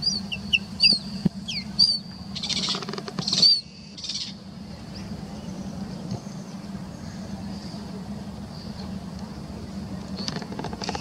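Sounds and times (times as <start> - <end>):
harsh scratchy bird calls: 0.0 - 5.1
birds chirping and whistling: 0.0 - 7.8
steady low hum: 0.0 - 11.0.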